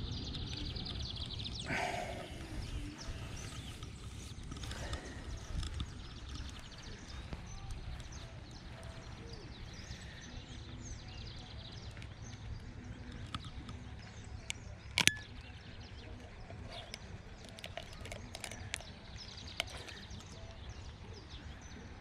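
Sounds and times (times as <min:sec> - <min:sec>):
steady low rumble: 0:00.0 - 0:17.5
birds chirping and calling: 0:00.0 - 0:22.0
sharp clicks: 0:02.9 - 0:08.2, 0:11.7 - 0:15.7.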